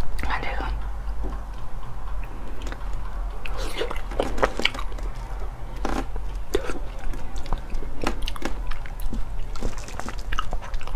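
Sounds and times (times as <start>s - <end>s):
steady low hum: 0.0s - 10.9s
person chewing wetly: 3.4s - 10.9s.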